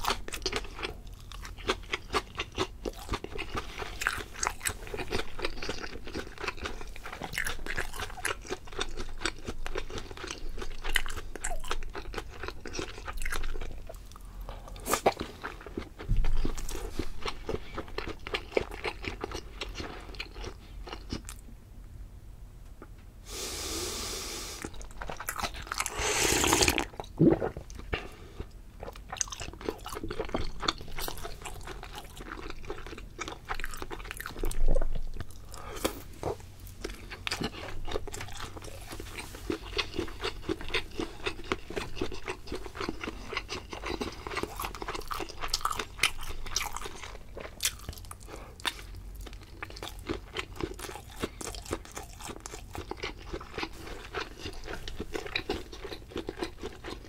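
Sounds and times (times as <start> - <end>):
crunchy chewing: 0.0 - 21.4, 24.6 - 57.0
broth sipped from a bowl: 25.9 - 27.6.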